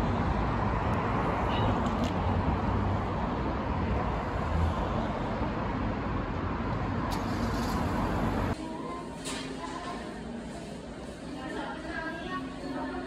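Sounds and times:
road traffic passing: 0.0s - 8.6s.

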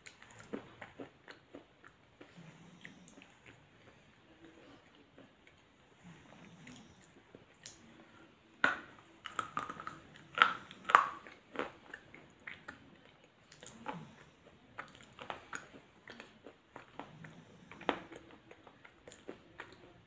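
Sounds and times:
person chewing crunchy snack: 8.6s - 20.0s.

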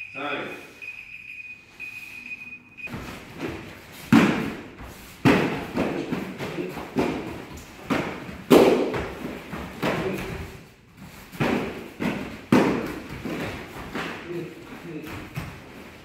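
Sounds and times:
steady high beep: 0.0s - 3.0s.

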